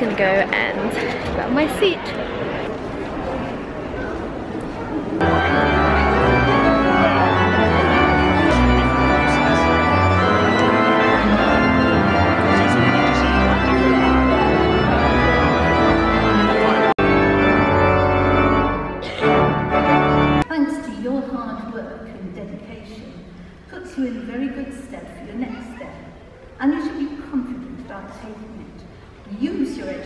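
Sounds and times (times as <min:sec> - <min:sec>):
pipe organ playing chords: 0:05.2 - 0:20.4.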